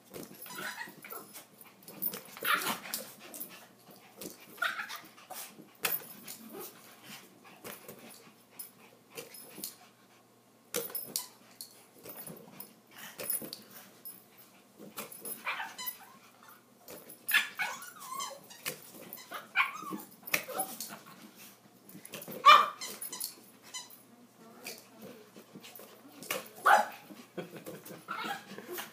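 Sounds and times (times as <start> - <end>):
small dogs yipping and barking: 0.4 - 3.1, 4.5 - 5.2, 15.3 - 16.6, 17.2 - 21.0, 22.3 - 24.0, 26.6 - 27.0, 28.1 - 28.9.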